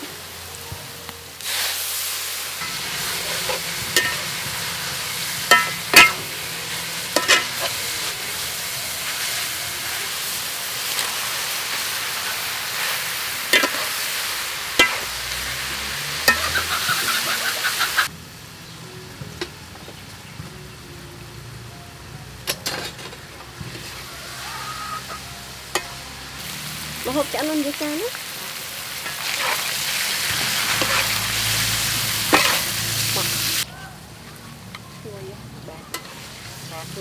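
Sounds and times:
vegetables sizzling in a wok: 0.0 - 37.0
spatula scraping a pan: 29.0 - 31.5, 32.2 - 33.3.

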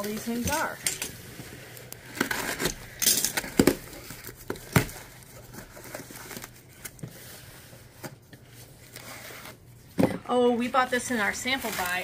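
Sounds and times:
cardboard flaps scraping and rustling: 10.8 - 12.0.

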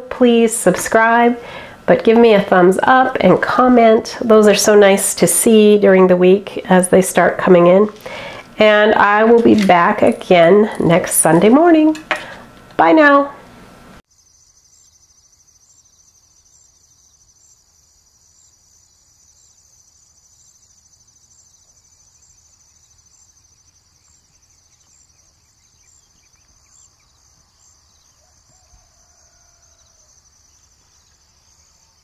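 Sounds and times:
high pulsing insect trill: 14.1 - 32.0.

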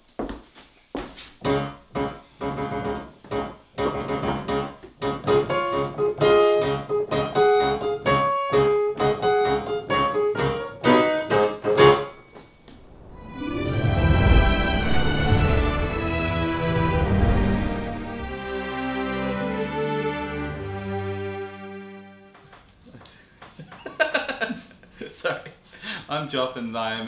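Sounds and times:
keyboard playing piano tune: 1.4 - 12.6.

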